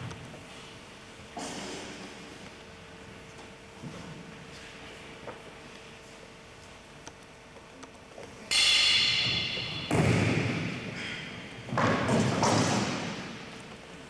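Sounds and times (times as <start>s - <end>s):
loud impacts in echoing hall: 1.3s - 2.4s, 8.4s - 14.0s.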